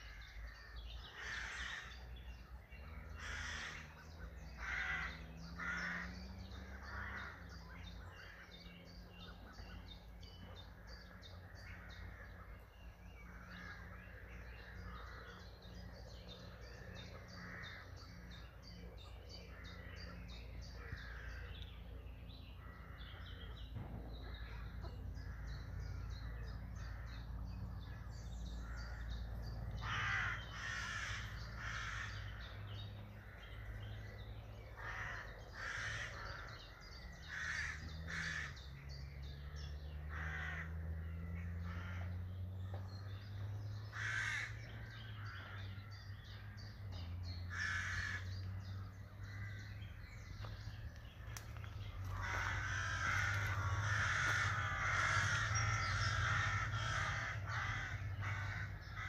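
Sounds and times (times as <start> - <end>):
crows cawing: 0.0 - 2.2, 2.9 - 8.5, 13.2 - 15.8, 16.7 - 18.2, 19.4 - 21.6, 22.6 - 23.5, 24.4 - 38.9, 40.0 - 42.3, 43.8 - 46.6, 47.5 - 50.5, 51.2 - 59.0
small birds chirping: 0.0 - 59.0
steady low hum: 40.9 - 59.0.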